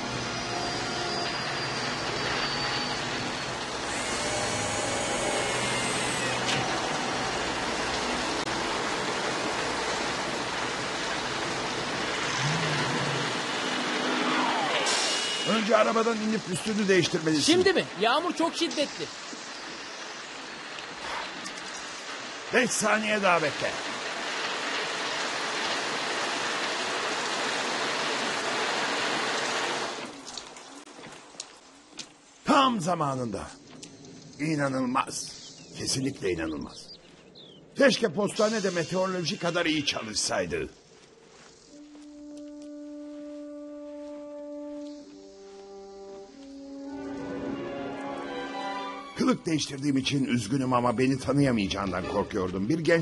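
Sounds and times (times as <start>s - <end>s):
heavy rain pouring: 0.0s - 36.5s.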